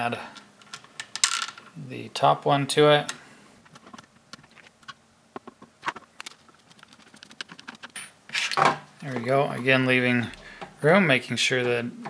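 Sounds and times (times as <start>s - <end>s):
plastic parts knocking: 3.7s - 8.0s.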